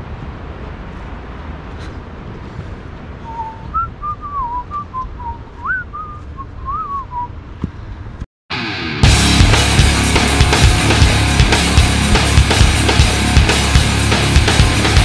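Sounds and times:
steady low rumble: 0.0s - 8.3s, 9.0s - 15.0s
person whistling a tune: 3.3s - 7.3s.

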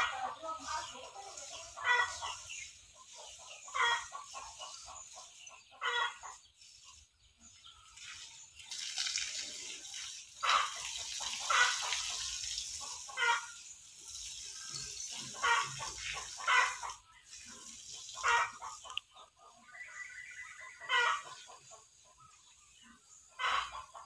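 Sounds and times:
hose spraying water: 0.0s - 19.0s.

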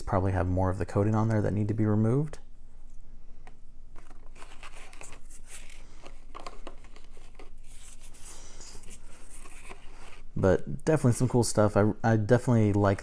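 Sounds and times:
packaging rustling and crinkling: 3.9s - 10.3s.

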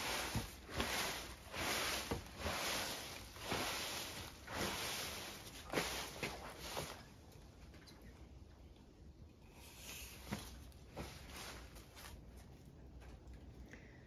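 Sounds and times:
broom sweeping a hard floor: 0.0s - 7.2s, 9.6s - 12.5s.

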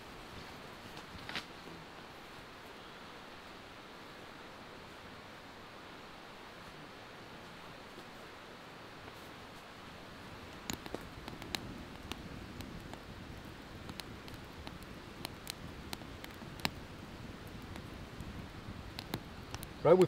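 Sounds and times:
low steady hiss: 0.0s - 20.0s
sticks crackling in a stove: 0.2s - 1.7s, 9.0s - 20.0s.

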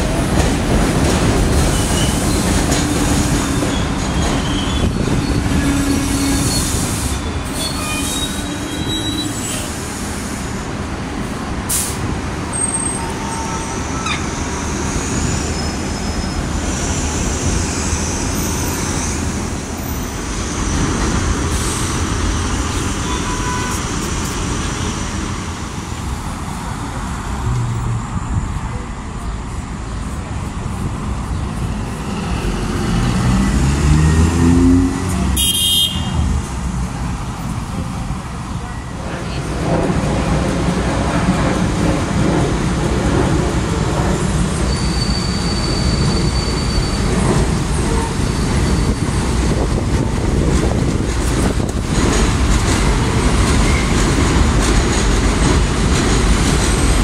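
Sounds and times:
elevated train running: 0.0s - 57.0s
street traffic din: 0.0s - 57.0s
train wheels squealing: 1.6s - 10.5s, 12.5s - 20.9s, 44.2s - 49.3s, 53.5s - 54.1s.

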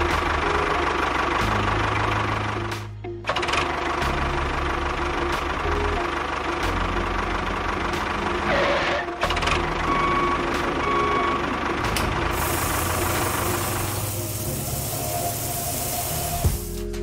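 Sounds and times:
tractor engine idling: 0.0s - 17.0s
sand pouring hiss: 12.3s - 16.8s.

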